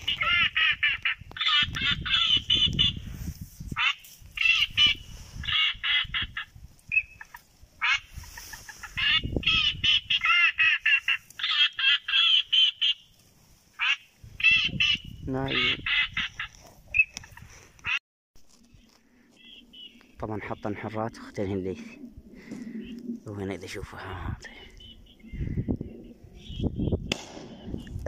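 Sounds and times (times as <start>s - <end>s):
ducks quacking: 13.8s - 18.0s.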